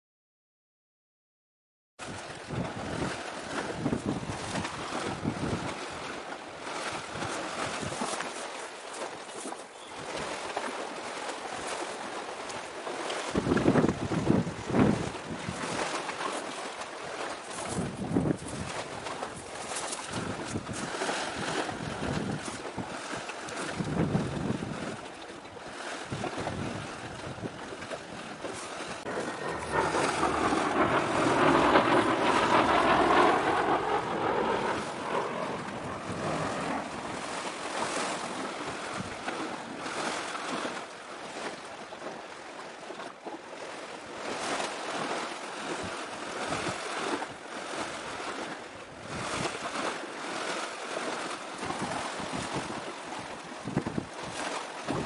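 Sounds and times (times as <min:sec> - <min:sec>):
wind buffeting microphone: 0:02.0 - 0:43.0, 0:43.6 - 0:55.0
sea washing: 0:02.0 - 0:55.0
passing sound with gliding pitch: 0:29.0 - 0:39.2.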